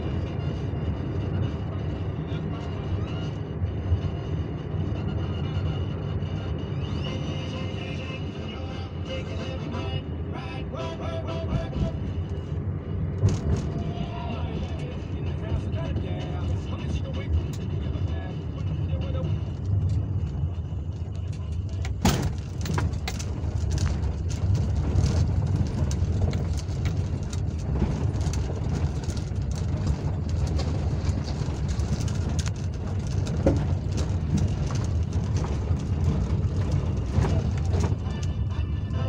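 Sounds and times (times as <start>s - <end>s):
engine and tyre rumble: 0.0s - 39.0s
car knocks and rattles: 11.5s - 14.0s, 19.4s - 38.5s.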